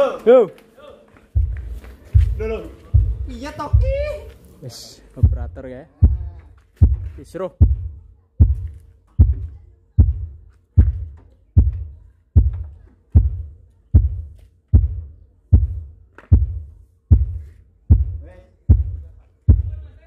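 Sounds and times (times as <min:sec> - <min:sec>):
deep thumping test pulses: 0:01.4 - 0:04.3, 0:05.2 - 0:19.9.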